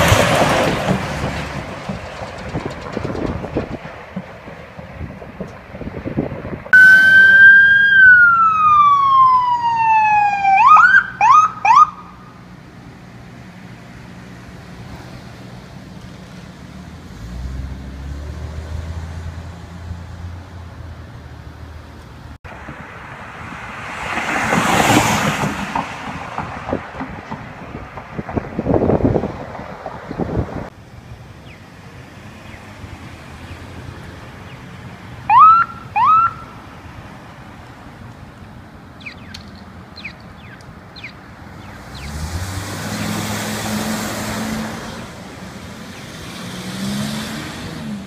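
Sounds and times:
ambulance engine hum: 0.0s - 18.2s, 18.8s - 48.0s
passing vehicles rushing: 0.0s - 48.0s
ambulance siren wailing and whooping: 6.8s - 12.0s, 35.3s - 36.5s.

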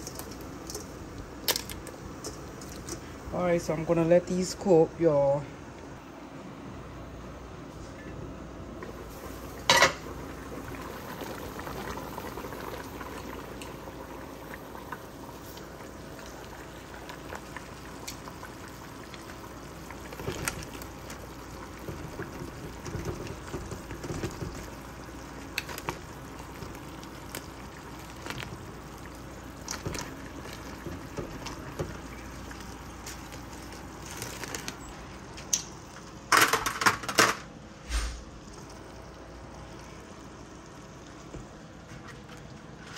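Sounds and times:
water boiling in a pot: 0.0s - 5.4s, 8.6s - 42.9s
pot lid clanking: 9.7s - 10.0s.

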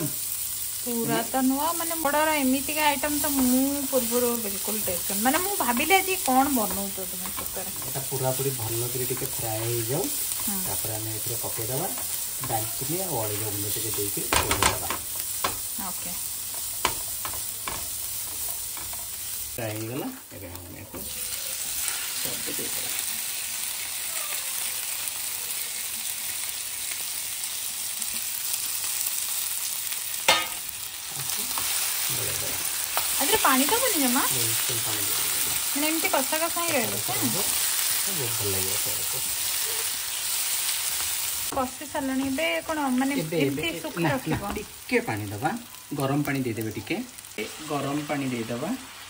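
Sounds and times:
vegetables sizzling in oil: 0.0s - 49.0s
spatula scraping pan: 3.1s - 19.6s.

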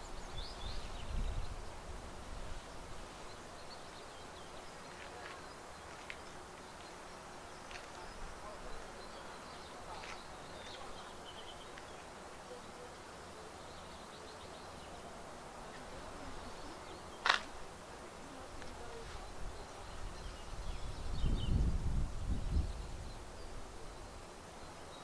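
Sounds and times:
steady low hiss: 0.0s - 25.0s
sharp crack: 17.2s - 17.6s.

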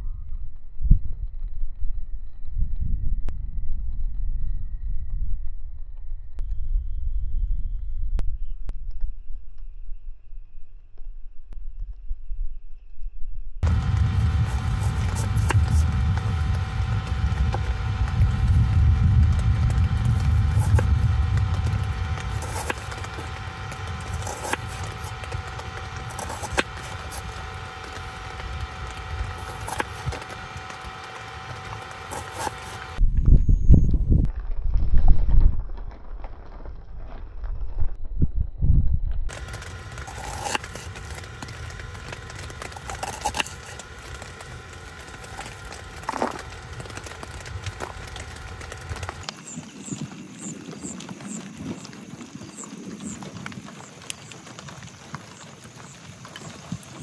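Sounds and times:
thunder rumble: 13.6s - 32.1s.

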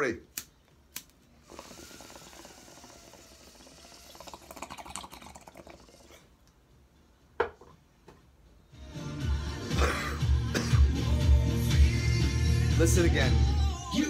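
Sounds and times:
water bubbling in a bong: 1.5s - 6.3s.

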